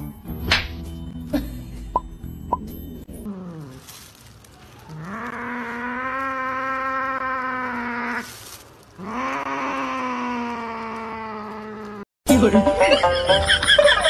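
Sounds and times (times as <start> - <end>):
cat yowling: 4.8 - 8.4, 9.0 - 12.0.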